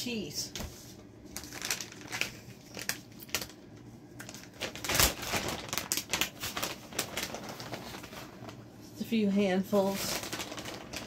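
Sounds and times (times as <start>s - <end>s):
loud plastic crackle: 1.2s - 8.7s, 9.7s - 11.0s
plastic bag crinkling: 1.2s - 8.7s, 9.7s - 11.0s.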